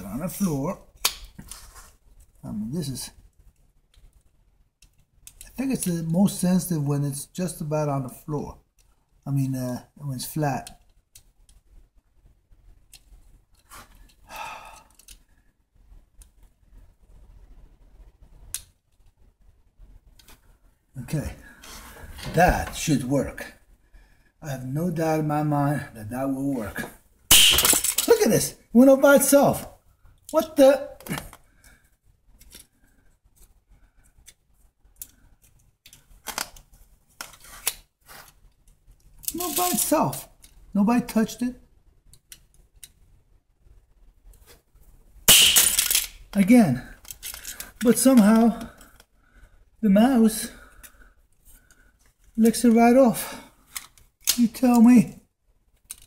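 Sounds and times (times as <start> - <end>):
trap set on concrete floor: 27.3 - 28.1, 45.3 - 46.3.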